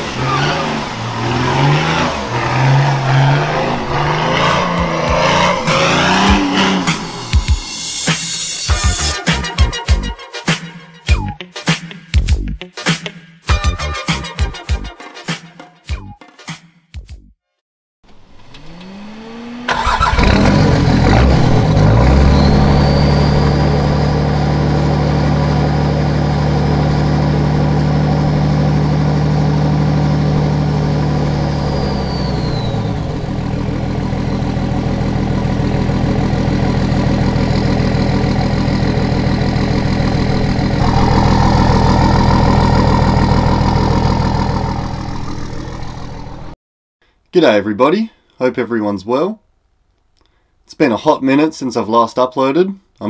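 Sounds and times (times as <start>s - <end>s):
diesel engine starting and revving: 0.0s - 8.0s, 18.1s - 46.6s.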